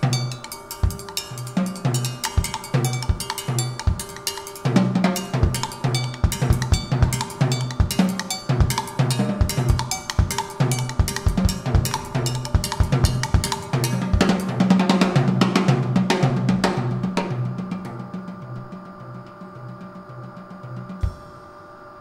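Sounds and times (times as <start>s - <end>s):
drum kit playing busy beat: 0.0s - 18.6s, 20.8s - 21.5s
held notes ringing: 0.0s - 22.0s.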